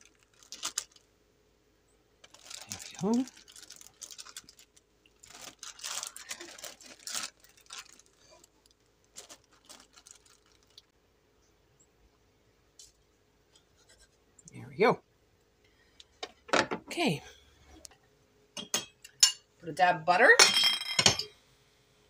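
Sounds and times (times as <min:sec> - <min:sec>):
plastic bag crinkling: 0:00.0 - 0:01.1, 0:02.2 - 0:10.9.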